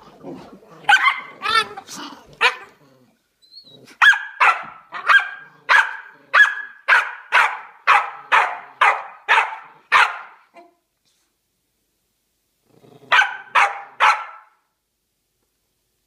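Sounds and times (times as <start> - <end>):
dog barking in play: 0.8 - 2.8, 3.8 - 10.8, 13.1 - 14.6.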